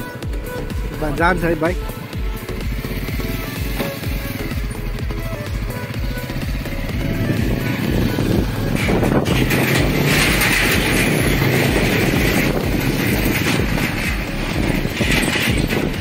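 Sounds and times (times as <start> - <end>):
metal deck rattling: 0.0 - 16.0
motorcycle engine running: 0.0 - 16.0
wind noise on microphone: 4.2 - 16.0.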